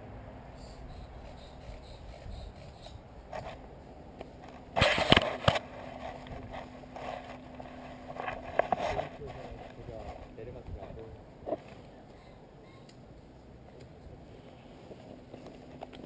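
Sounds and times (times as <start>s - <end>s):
gear scraping clatter: 4.4s - 11.8s.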